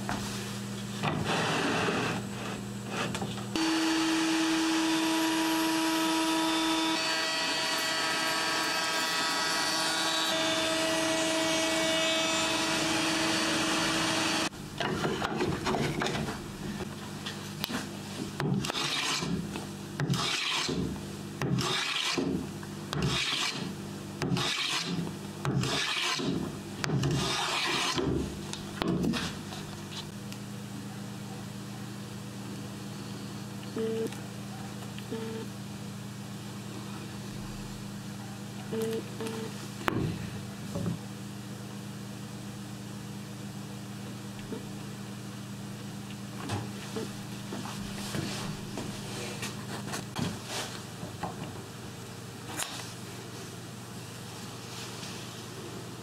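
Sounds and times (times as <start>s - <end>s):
router whining: 3.6s - 14.5s.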